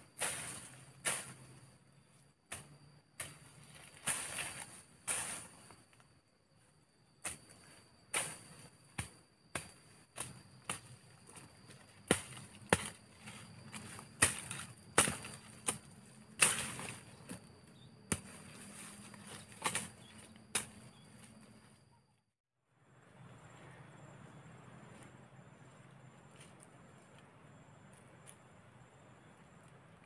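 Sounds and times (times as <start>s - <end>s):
machete chopping undergrowth: 0.2s - 1.5s, 7.2s - 21.0s.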